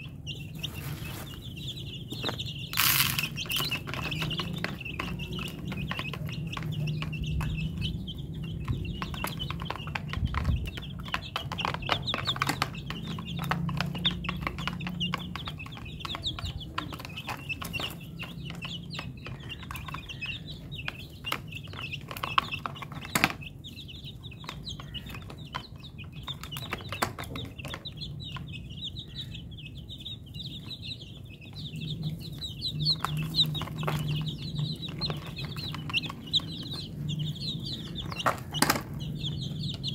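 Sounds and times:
chicks pecking taps and clicks: 0.0 - 39.9
chicks peeping: 0.0 - 39.9.

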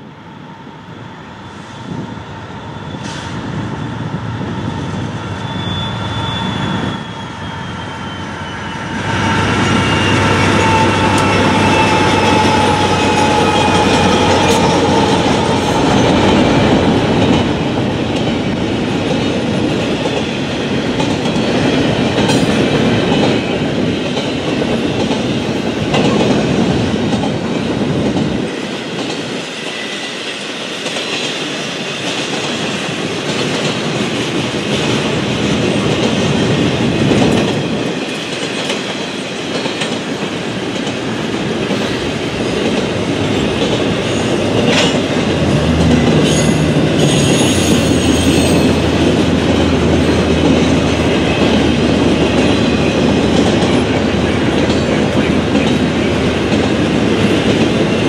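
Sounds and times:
freight train rumbling past: 0.0 - 58.0
thin wheel squeal: 5.2 - 13.8.

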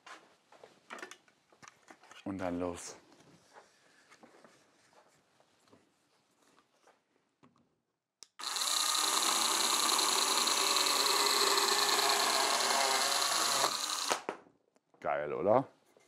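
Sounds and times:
cordless chainsaw cutting log: 8.4 - 14.3.

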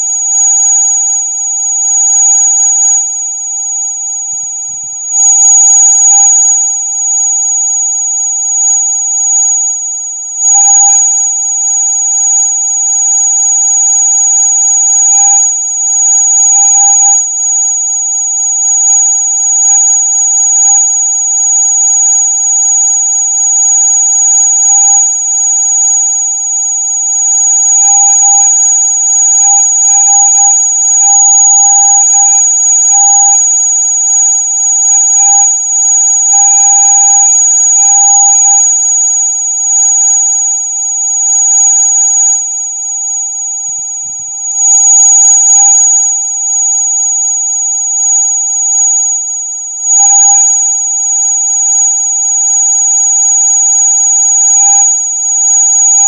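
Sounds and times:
low steady electronic tone: 0.0 - 0.7, 27.5 - 40.2, 49.8 - 56.0.

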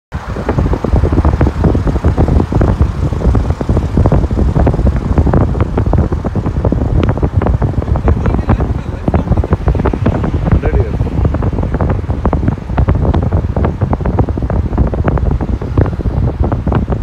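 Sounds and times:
road and wind rumble: 0.1 - 17.0
wind buffeting: 0.1 - 17.0.

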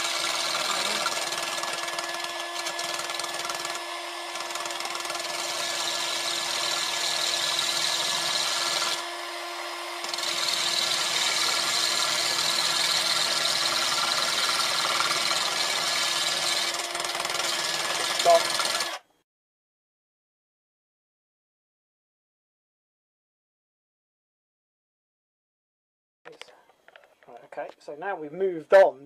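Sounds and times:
drill motor whine: 0.0 - 19.1.

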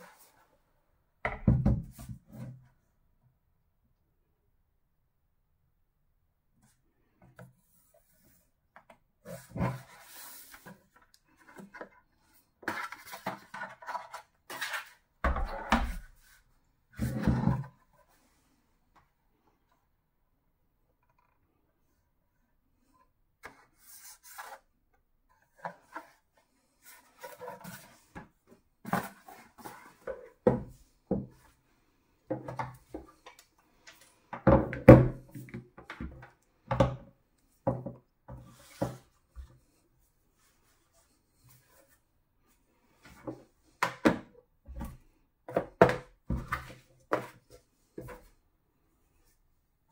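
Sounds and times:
knocks and clunks on wooden desk: 1.2 - 2.2, 34.4 - 37.1.

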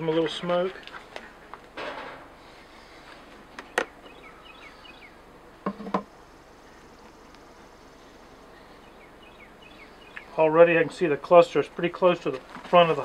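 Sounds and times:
honeybees buzzing: 2.4 - 12.2
bird chirps: 3.6 - 5.2, 6.5 - 10.4
wooden hive bars knocking: 5.6 - 6.1.

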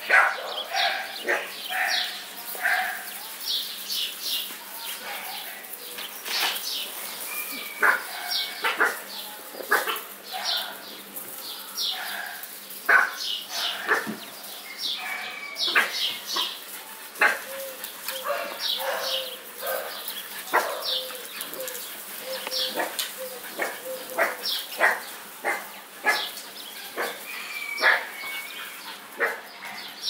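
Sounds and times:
puppies yapping and whining: 7.2 - 10.1, 15.0 - 26.2, 26.8 - 29.8.

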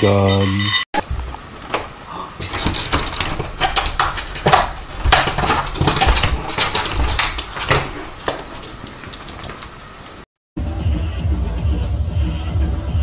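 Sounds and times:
pet door flap rattling: 2.4 - 9.8.

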